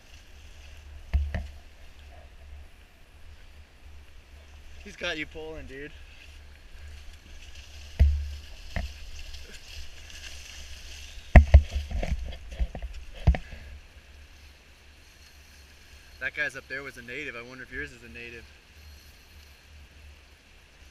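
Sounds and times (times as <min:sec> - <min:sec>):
wading through shallow water: 0:00.0 - 0:16.7
sharp low thumps: 0:07.9 - 0:09.0.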